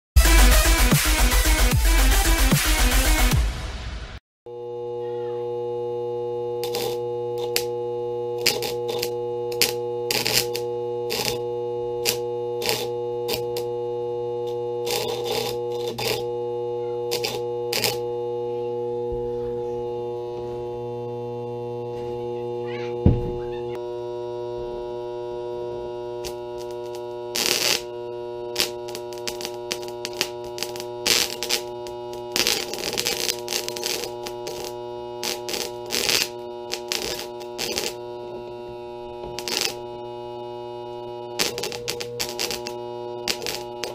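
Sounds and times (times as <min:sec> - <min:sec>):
transformer humming: 0:04.5 - 0:43.9
electrical crackling: 0:06.6 - 0:07.8, 0:08.4 - 0:13.8, 0:14.5 - 0:16.3, 0:17.1 - 0:18.1, 0:26.2 - 0:40.0, 0:40.6 - 0:43.9.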